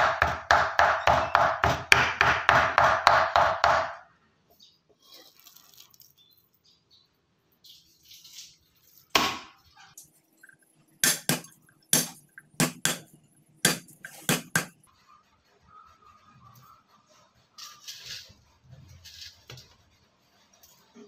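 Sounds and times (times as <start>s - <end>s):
cleaver chopping on wooden block: 0.0s - 3.9s, 11.0s - 13.0s, 13.7s - 14.7s.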